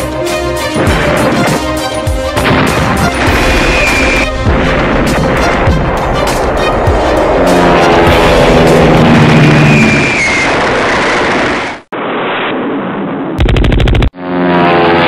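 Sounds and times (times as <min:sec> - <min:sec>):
gunfire and explosions: 0:00.7 - 0:15.0
low drone: 0:02.4 - 0:11.3.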